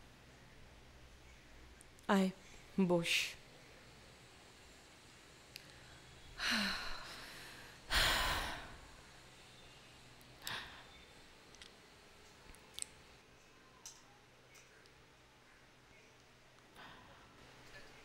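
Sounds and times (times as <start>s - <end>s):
woman sighing: 6.4s - 8.8s.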